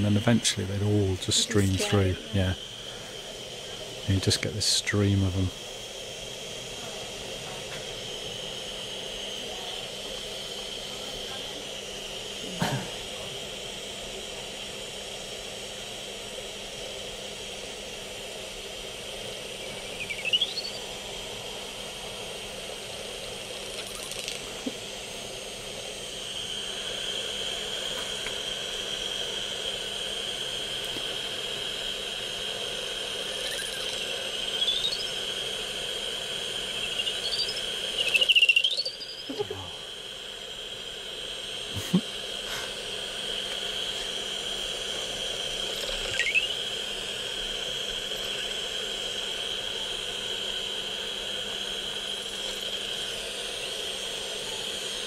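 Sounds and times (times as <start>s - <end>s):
bat detector hiss: 0.0s - 55.0s
bat echolocation chirps: 18.9s - 24.9s, 25.6s - 55.0s.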